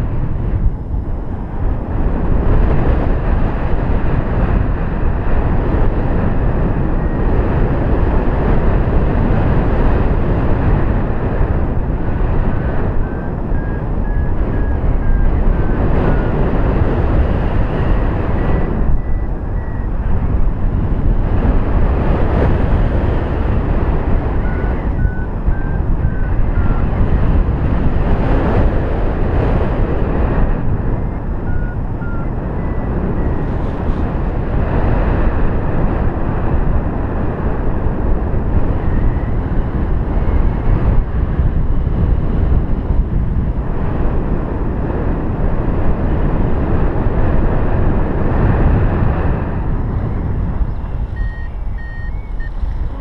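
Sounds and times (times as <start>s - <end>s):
wind rushing over microphone: 0.0s - 53.0s
faint short electronic beeps: 18.4s - 19.9s, 31.4s - 33.8s, 50.1s - 53.0s.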